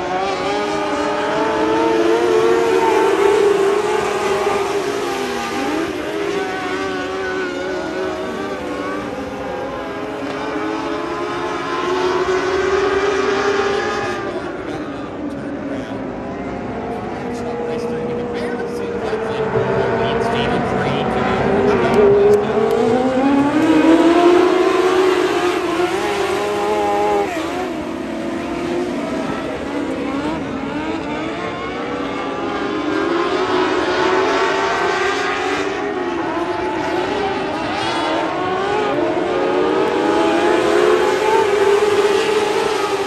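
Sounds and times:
race car engines at high revs: 0:00.0 - 0:43.0.

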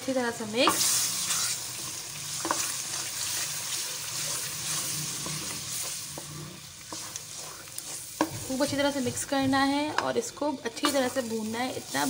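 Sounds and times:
masala sizzling in a pot: 0:00.0 - 0:12.0
wooden spatula stirring paste: 0:00.7 - 0:11.4.

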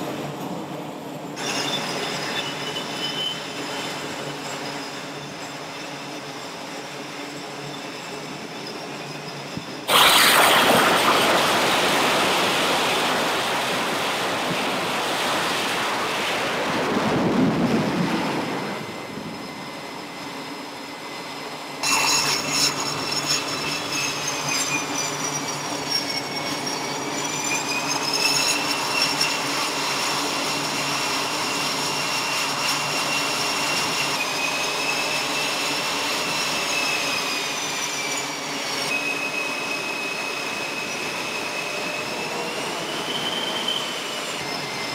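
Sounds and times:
jet turbine whine: 0:00.0 - 0:44.9
jet engines roaring: 0:09.5 - 0:21.8, 0:22.7 - 0:44.9.

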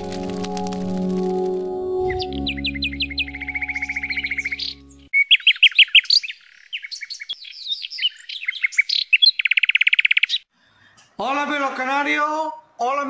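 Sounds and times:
low held chord: 0:00.0 - 0:05.1
canary singing: 0:00.0 - 0:10.5.

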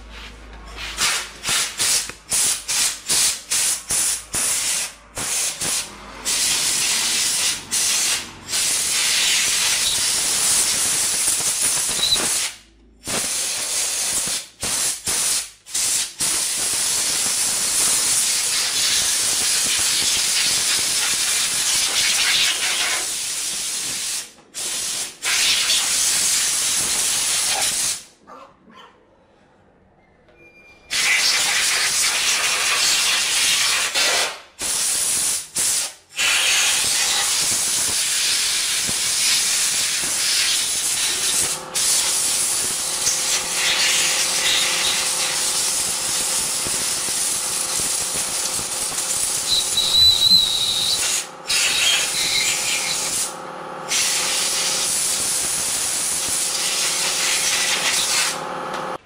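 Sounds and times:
compressed air blow gun hissing: 0:01.0 - 0:28.1.

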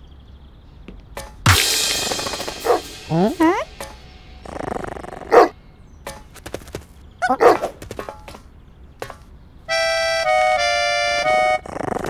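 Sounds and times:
buzzy held tone: 0:01.5 - 0:05.4.

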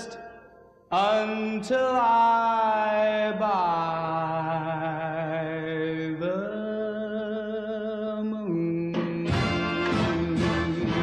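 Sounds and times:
man singing with vibrato: 0:00.0 - 0:11.0
orchestral backing: 0:09.0 - 0:11.0.

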